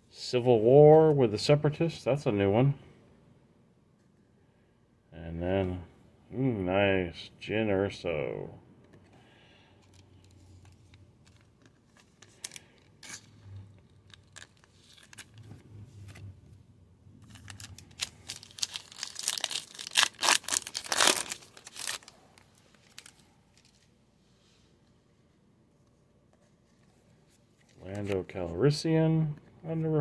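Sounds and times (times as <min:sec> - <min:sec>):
cards being handled: 0:09.8 - 0:16.3, 0:17.2 - 0:23.9, 0:26.4 - 0:28.3
foil wrapper tearing and crinkling: 0:14.0 - 0:15.4, 0:17.2 - 0:23.7.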